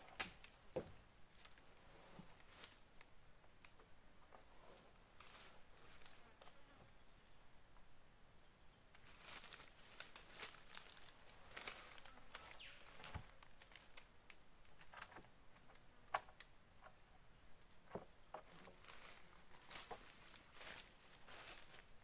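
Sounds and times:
dry twigs and leaves crackling: 0.0s - 3.8s, 5.0s - 6.5s, 8.9s - 16.9s, 17.8s - 22.0s.

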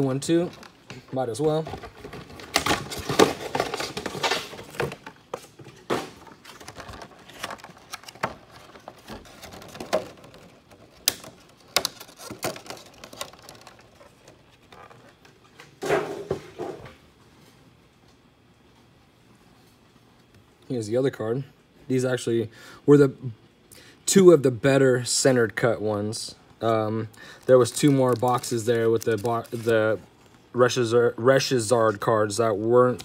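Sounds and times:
rustling of contents: 0.0s - 17.7s, 26.6s - 30.8s.

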